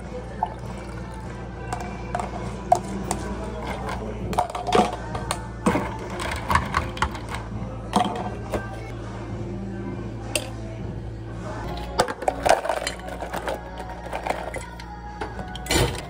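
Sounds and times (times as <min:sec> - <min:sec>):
steady low hum: 0:00.0 - 0:16.0
spoon and ice clinking in cup: 0:11.7 - 0:15.8.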